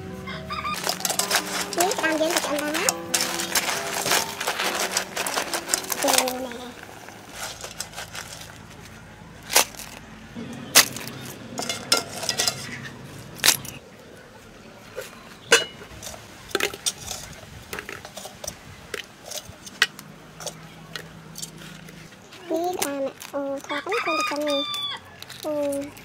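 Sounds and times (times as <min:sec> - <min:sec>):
metal cookware clanking: 0:00.7 - 0:08.9, 0:09.5 - 0:13.8, 0:15.4 - 0:22.0.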